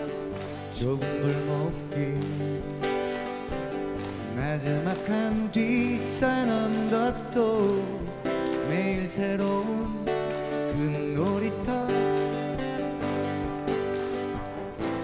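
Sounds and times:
man singing: 0:00.0 - 0:03.0, 0:04.2 - 0:13.0
strummed acoustic guitars: 0:00.0 - 0:15.0.

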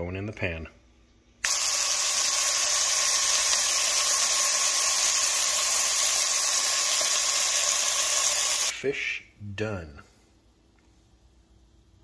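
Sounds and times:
fish sizzling in hot oil: 0:01.5 - 0:08.7.

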